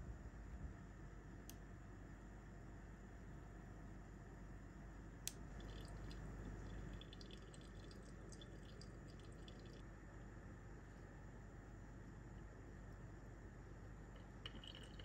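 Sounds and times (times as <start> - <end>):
coffee dripping onto ice: 5.5 - 9.8, 14.2 - 15.0.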